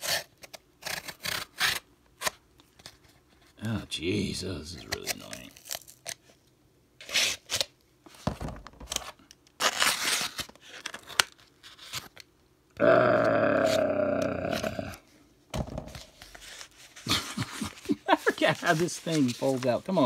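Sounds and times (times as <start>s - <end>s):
knife cutting cardboard: 0.0s - 2.4s
cardboard scraping and tearing: 8.9s - 12.1s, 15.9s - 20.0s.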